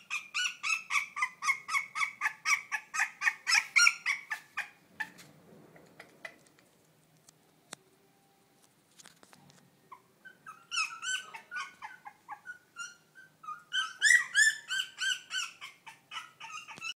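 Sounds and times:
puppies whining: 0.0 - 6.4, 9.9 - 17.0.

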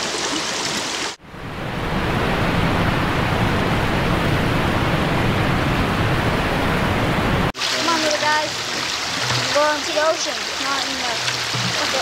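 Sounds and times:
flowing creek water: 0.0 - 1.2, 7.5 - 12.0.

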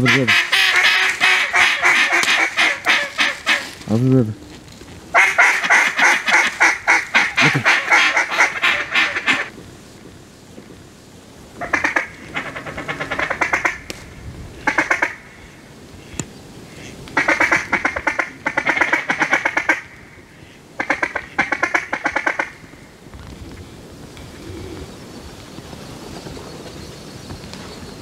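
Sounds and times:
duck quacking: 0.0 - 3.8, 5.2 - 9.5, 11.6 - 13.8, 16.7 - 22.6.

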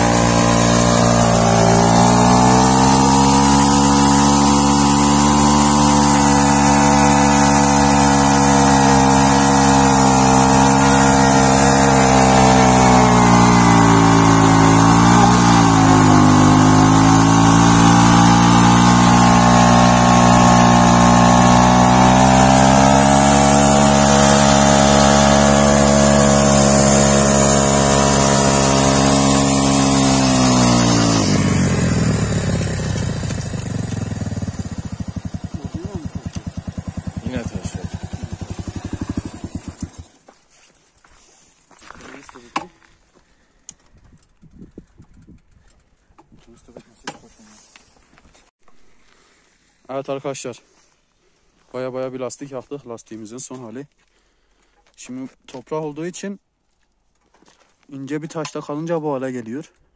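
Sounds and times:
motorcycle engine revving high: 0.0 - 40.2
spinning tyre hissing: 0.0 - 40.3.

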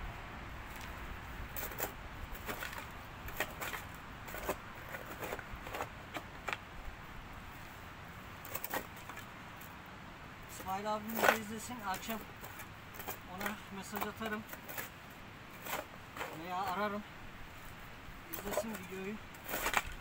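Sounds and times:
digging tool knocking and scraping: 1.6 - 6.6, 10.5 - 16.9, 18.3 - 20.0.

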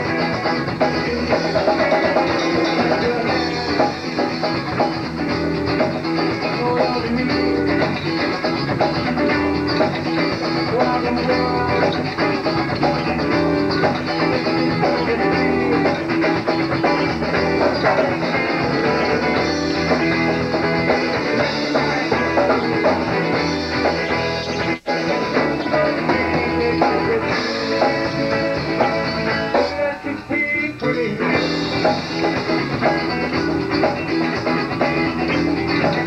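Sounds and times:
rock band playing: 0.0 - 36.0.

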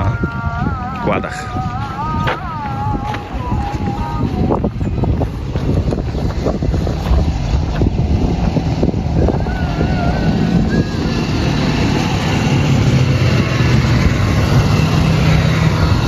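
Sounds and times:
distant call to prayer: 0.0 - 5.4
quad bike engines: 0.0 - 16.0
wind on microphone: 0.0 - 16.0.

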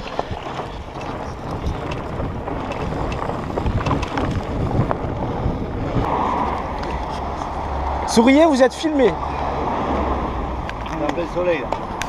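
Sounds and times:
bike clicks and rattles: 0.0 - 7.7, 10.6 - 12.0
bike tyre noise on dirt: 0.0 - 8.9
wind noise on microphone: 0.0 - 12.0.

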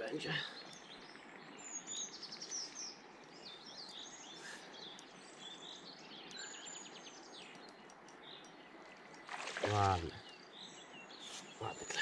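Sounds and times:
faint ticks: 0.0 - 12.0
songbirds chirping and trilling: 0.0 - 12.0
steady outdoor hiss: 0.0 - 12.0.

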